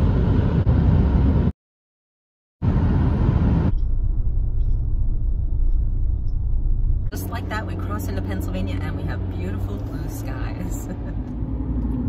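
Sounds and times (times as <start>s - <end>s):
road and tyre noise: 0.0s - 1.5s, 2.6s - 12.0s
steady hum: 2.6s - 12.0s.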